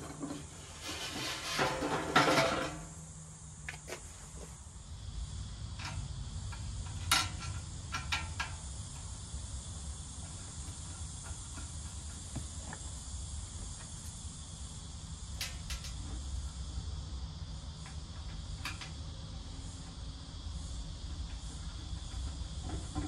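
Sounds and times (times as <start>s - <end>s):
steady high hiss: 0.0s - 23.0s.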